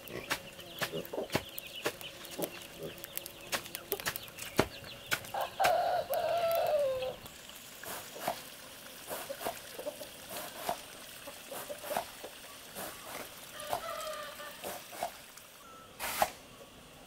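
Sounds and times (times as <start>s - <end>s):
poultry clucking: 0.0s - 7.3s, 9.1s - 15.1s.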